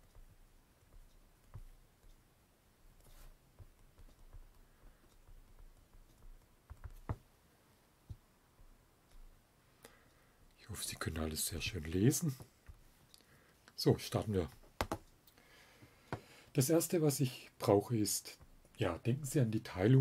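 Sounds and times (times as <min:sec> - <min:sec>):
stylus tapping on tablet screen: 0:00.0 - 0:02.2, 0:03.0 - 0:07.3, 0:14.5 - 0:15.2.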